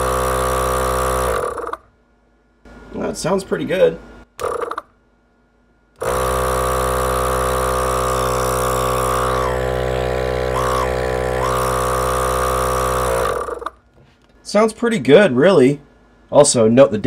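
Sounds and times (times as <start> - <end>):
air compressor running: 0.0 - 1.9, 4.4 - 4.9, 6.0 - 13.8.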